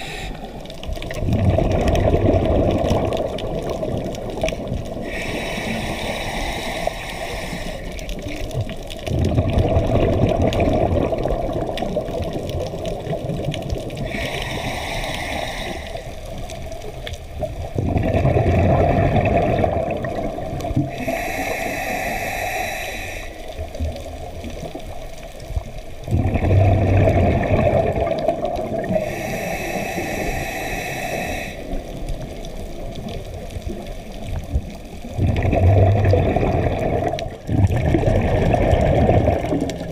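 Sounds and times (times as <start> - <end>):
regulator hissing inhalations: 0.0 - 0.6, 5.0 - 8.1, 14.0 - 16.4, 20.9 - 23.6, 28.9 - 32.0
exhaled bubbles bursting: 0.8 - 5.3, 8.1 - 14.6, 16.8 - 21.3, 25.6 - 29.2, 31.7 - 39.9.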